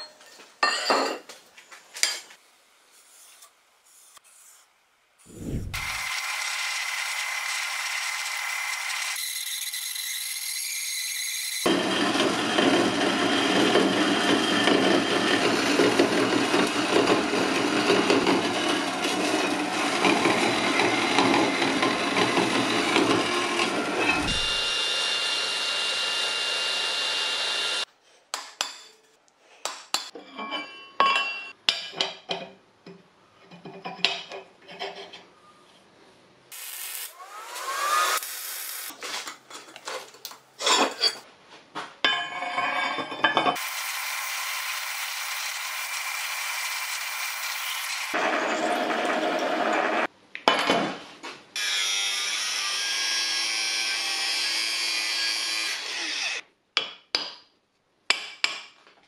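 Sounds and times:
band saw cutting steel: 0:05.3 - 0:27.9, 0:36.5 - 0:38.9, 0:43.6 - 0:50.1, 0:51.6 - 0:56.4.

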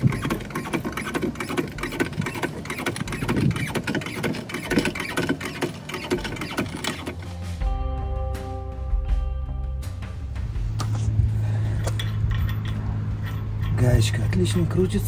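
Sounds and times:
hydraulic jack pumping clicks: 0:00.0 - 0:07.3.

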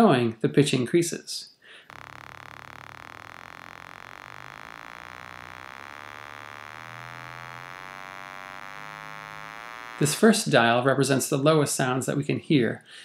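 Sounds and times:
rising buzzy test tone: 0:01.9 - 0:10.6.

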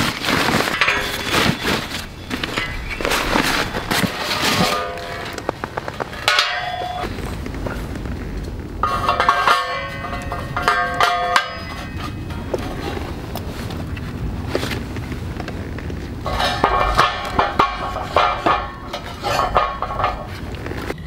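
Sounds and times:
metal panels clanking: 0:00.0 - 0:07.2, 0:08.8 - 0:13.3, 0:16.2 - 0:21.0.

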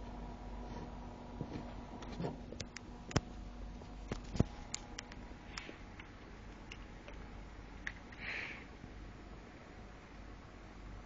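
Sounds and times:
sharp clicks and light knocks: 0:01.5 - 0:08.2.

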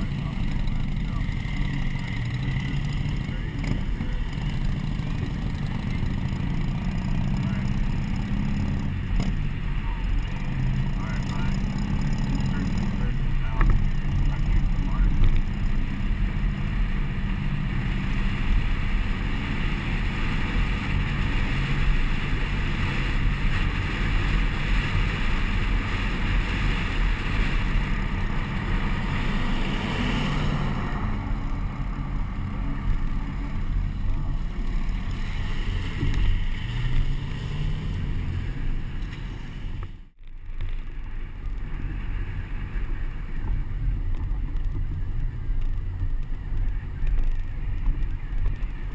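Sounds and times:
truck engine and tyre rumble: 0:00.0 - 0:48.9
wind rushing over camera: 0:13.0 - 0:48.9.

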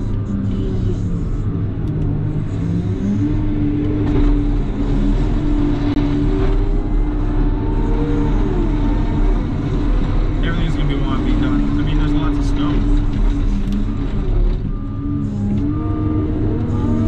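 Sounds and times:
loader diesel engine rumbling: 0:00.0 - 0:17.0.

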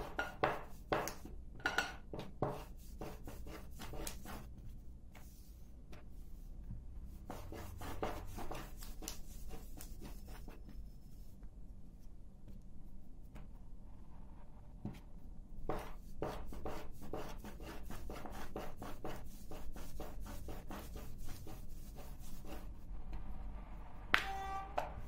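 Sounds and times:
rolling pin rolling over dough: 0:00.0 - 0:01.3, 0:02.1 - 0:11.3, 0:14.8 - 0:22.7.

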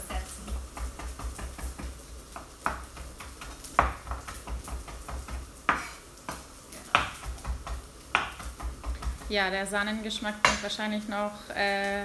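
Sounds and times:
knife chopping on wooden board: 0:00.5 - 0:09.3.

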